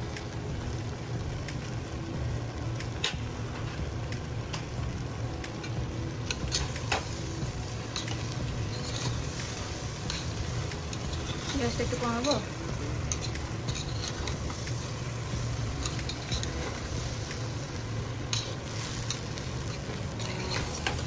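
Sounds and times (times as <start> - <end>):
food frying: 0.0 - 21.0
low hum: 0.0 - 21.0
metal spoon scraping a pot: 8.0 - 9.4, 13.1 - 14.6, 15.8 - 16.9, 18.3 - 21.0.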